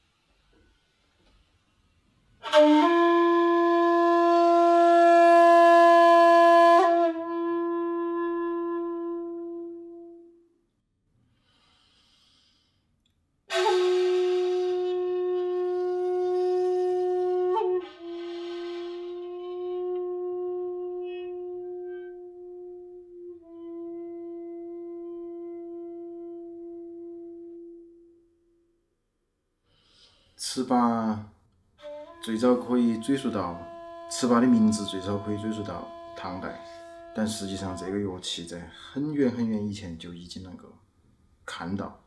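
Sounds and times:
bamboo flute long low notes: 2.4s - 10.5s, 13.5s - 28.3s, 31.8s - 38.7s.

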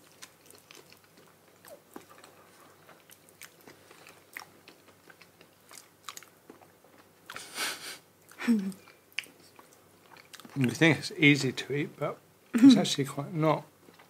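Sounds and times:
wet chewing: 0.0s - 7.6s, 8.2s - 10.8s.

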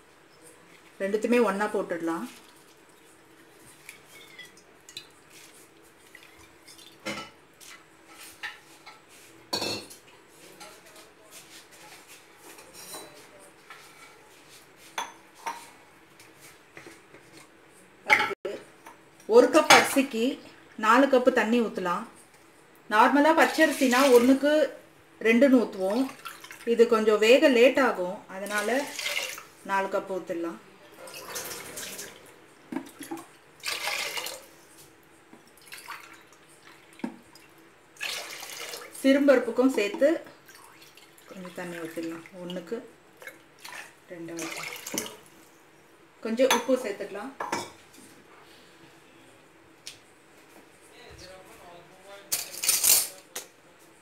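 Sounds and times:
water pouring into metal pot: 28.6s - 29.5s, 33.6s - 34.5s, 38.0s - 39.0s.

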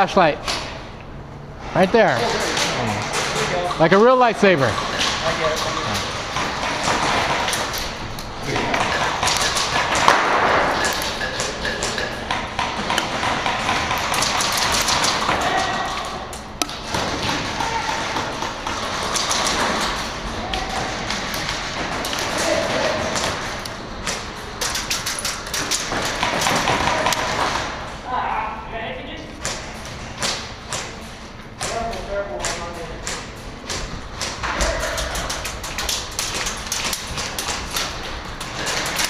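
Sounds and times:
airsoft gunfire echoing: 8.8s - 11.8s.

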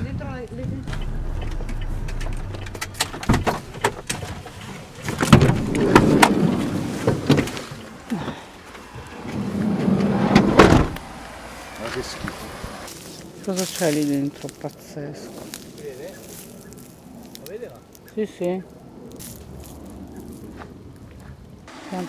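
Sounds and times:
loud rumbling: 0.0s - 7.1s
car interior rumble: 0.0s - 12.9s.

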